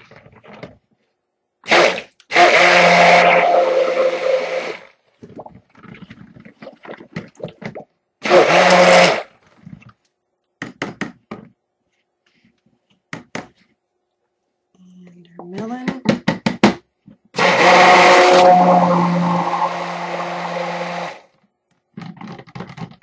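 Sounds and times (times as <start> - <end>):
stick blender running: 1.7 - 4.9, 8.2 - 9.2, 17.4 - 21.3.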